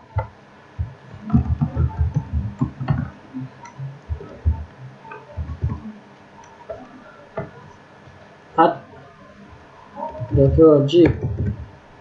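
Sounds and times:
computer keyboard typing: 0:00.1 - 0:07.6, 0:10.0 - 0:11.7.

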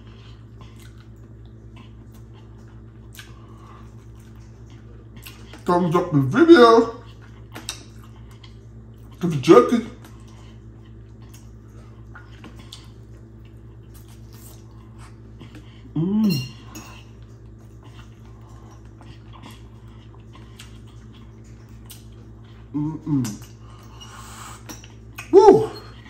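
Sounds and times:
steady low hum: 0:00.0 - 0:26.0
short vocal sound: 0:25.3 - 0:25.9.

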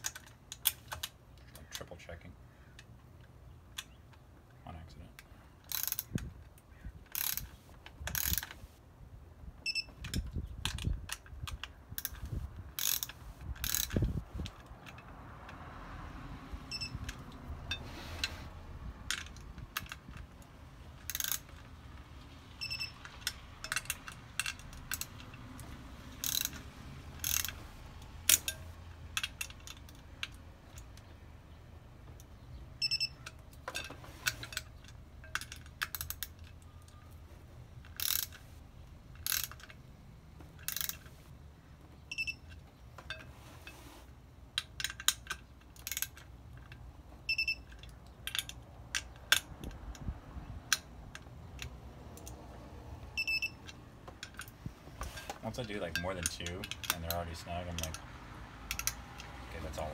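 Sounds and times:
hand ratchet clicking: 0:05.6 - 0:06.2, 0:07.1 - 0:08.7, 0:10.0 - 0:15.6, 0:21.0 - 0:21.8, 0:22.6 - 0:31.0, 0:37.8 - 0:38.4, 0:39.1 - 0:39.8, 0:40.6 - 0:41.1, 0:55.2 - 0:59.9.

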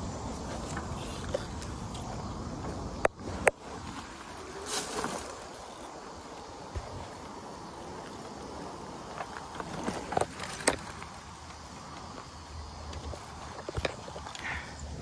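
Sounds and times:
tyres rolling on dirt: 0:00.0 - 0:15.0
bike clacking and rattling: 0:00.5 - 0:14.8.

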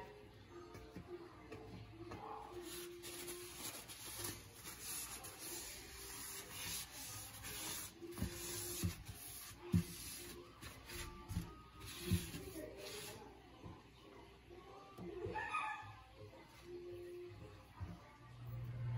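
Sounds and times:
cloth wiping metal sink rim: 0:02.6 - 0:13.2.

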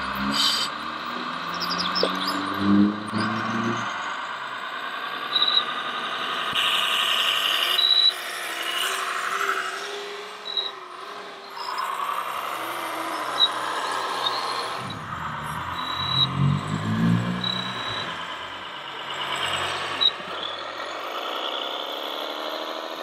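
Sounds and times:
toy truck motors whining: 0:00.0 - 0:23.0
short high squeaks: 0:00.2 - 0:04.0, 0:10.4 - 0:10.8, 0:12.8 - 0:21.0.

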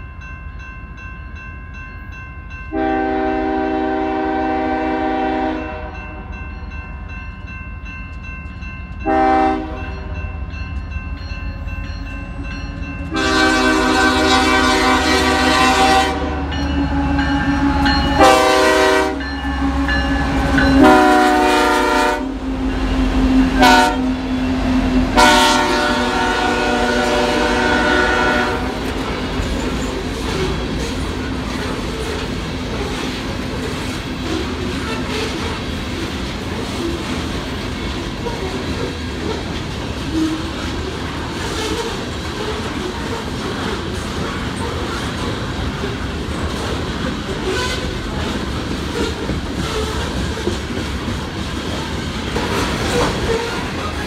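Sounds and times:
locomotive air horn blasts: 0:02.7 - 0:06.3, 0:09.0 - 0:10.2, 0:13.1 - 0:22.6, 0:23.3 - 0:24.3, 0:25.1 - 0:28.8, 0:47.4 - 0:48.0
train wheels clicking over rail joints: 0:28.6 - 0:54.0.

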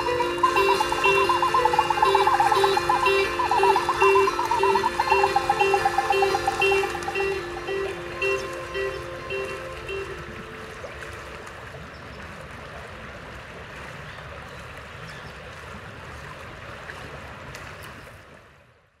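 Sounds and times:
plucked string instrument notes: 0:00.0 - 0:11.3
stream rippling: 0:00.0 - 0:19.0.

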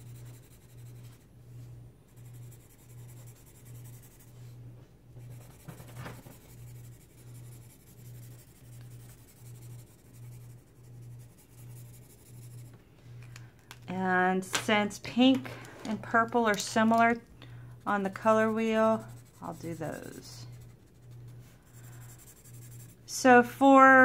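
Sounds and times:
marker scribbling on paper: 0:00.0 - 0:01.2, 0:02.1 - 0:04.4, 0:05.2 - 0:12.7, 0:17.8 - 0:23.2.

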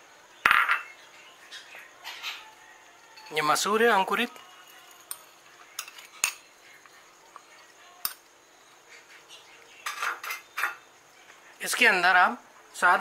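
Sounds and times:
spoon clinking against glass: 0:03.2 - 0:06.5, 0:09.8 - 0:10.8.

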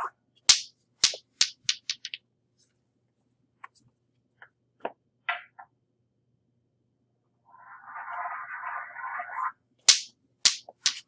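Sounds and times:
small hard ball bouncing on floor: 0:00.5 - 0:02.2, 0:09.9 - 0:11.0.

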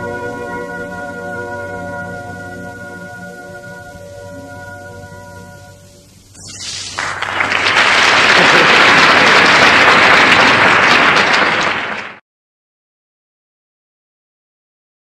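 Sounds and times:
held music chord: 0:00.0 - 0:06.3
audience applause: 0:06.6 - 0:12.2.

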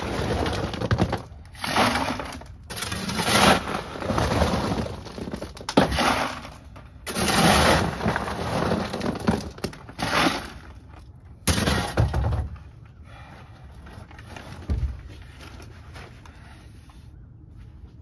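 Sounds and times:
shovel scooping stones: 0:00.0 - 0:12.0.

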